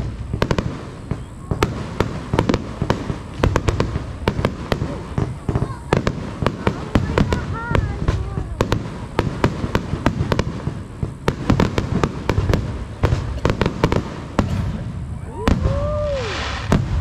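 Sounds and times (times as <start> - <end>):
firework shell bursts: 10.7 - 17.0.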